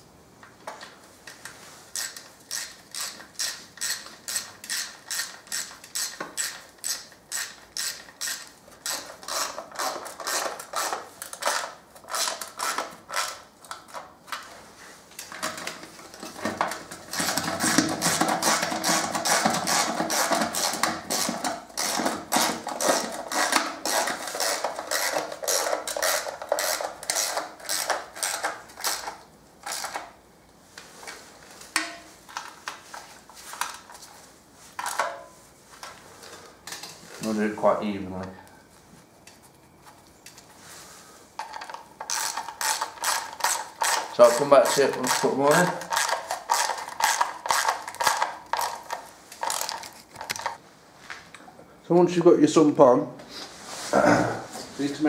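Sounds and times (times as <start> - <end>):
socket ratchet clicking: 2.0 - 13.4.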